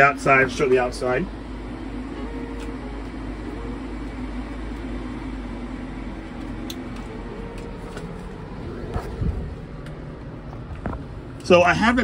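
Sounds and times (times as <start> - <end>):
electric fans humming: 0.0 - 12.0
low rumble: 2.9 - 11.5.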